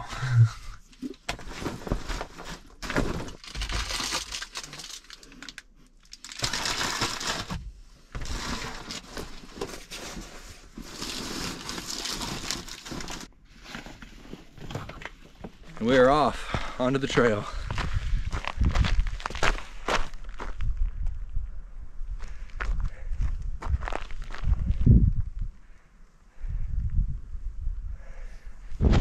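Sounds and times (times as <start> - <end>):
plastic water bottle crinkling: 0.9 - 7.6, 8.2 - 13.3.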